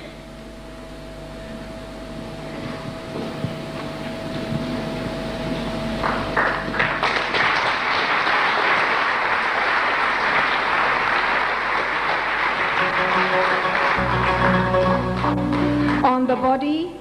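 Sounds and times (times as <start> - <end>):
crowd clapping: 6.0 - 16.5.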